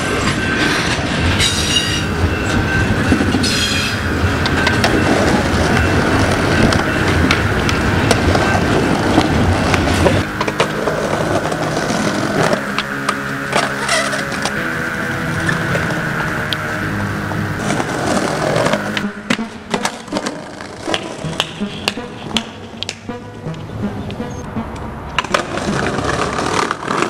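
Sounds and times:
train wheels clicking: 0.0s - 14.7s
high wheel squeals: 0.0s - 21.0s
freight train rumbling past: 0.0s - 27.0s.

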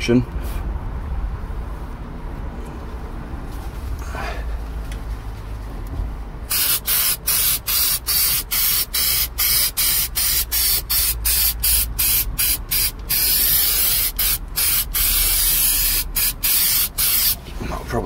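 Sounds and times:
aerosol can spraying: 6.5s - 17.4s.

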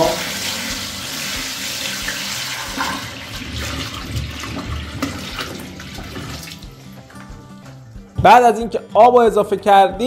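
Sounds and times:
water pouring into a tank: 0.0s - 6.7s.

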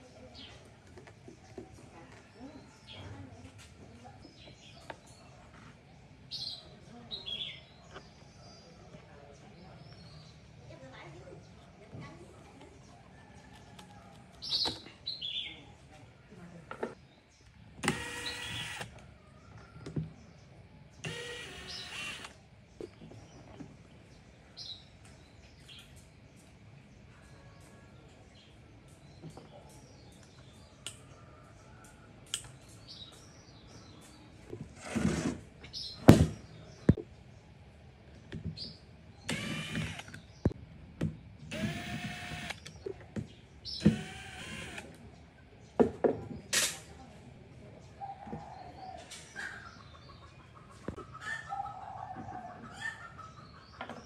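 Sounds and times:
impact driver spinning screws: 17.8s - 18.9s, 21.0s - 22.3s, 39.3s - 40.2s, 41.5s - 42.6s, 43.8s - 44.8s.

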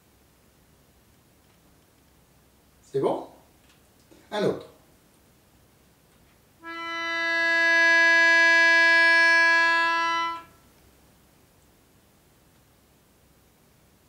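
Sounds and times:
melodica long held note: 6.6s - 10.6s.

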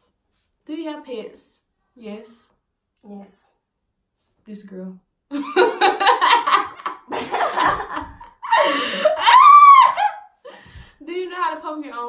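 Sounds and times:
women laughing: 5.3s - 10.4s
high-pitched squeal of laughter: 8.5s - 10.3s.

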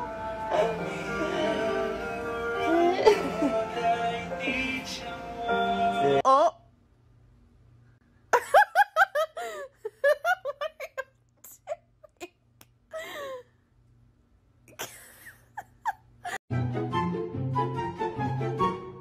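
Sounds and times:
person laughing: 2.8s - 3.6s, 8.4s - 12.4s, 14.7s - 16.4s.

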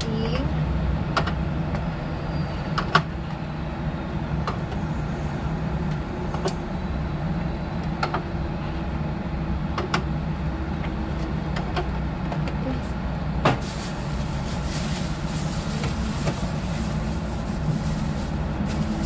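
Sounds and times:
groceries knocking and clicking: 13.4s - 16.9s.

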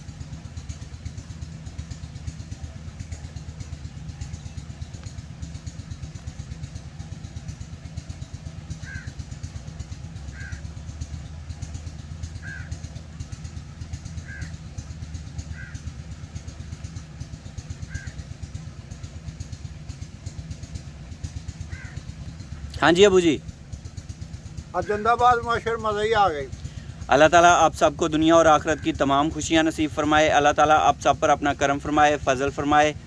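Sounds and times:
small engine chugging: 0.0s - 33.0s
crow cawing: 8.7s - 9.3s, 10.2s - 10.9s, 12.3s - 12.9s, 14.2s - 14.7s, 15.3s - 16.1s, 17.8s - 18.6s, 21.5s - 22.3s, 28.3s - 29.4s.

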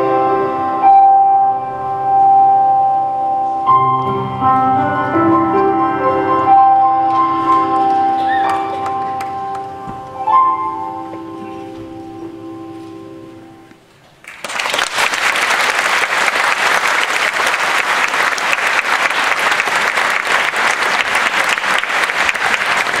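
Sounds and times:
audience applause: 14.2s - 23.0s.

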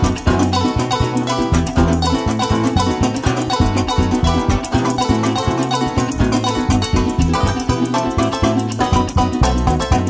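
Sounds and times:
band driving beat: 0.0s - 10.0s.

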